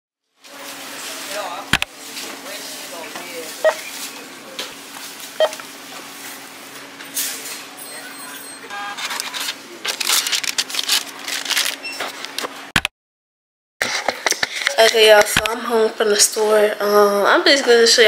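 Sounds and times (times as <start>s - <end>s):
items clattering and rustling: 0.4s - 12.6s
steady hum: 0.5s - 12.7s
short beep: 3.6s - 3.9s, 7.8s - 9.0s
brief tone: 7.8s - 9.1s, 11.8s - 12.1s.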